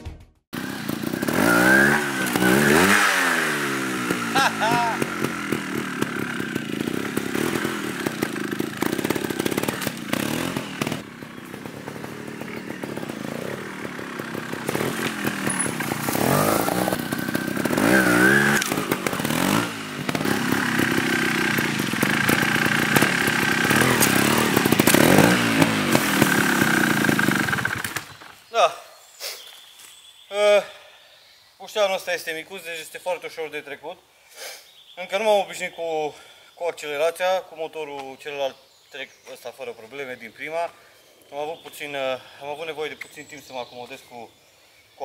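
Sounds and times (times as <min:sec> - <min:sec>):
motorcycle engine revving: 0:00.6 - 0:28.5
wheels knocking on wood: 0:03.9 - 0:28.3.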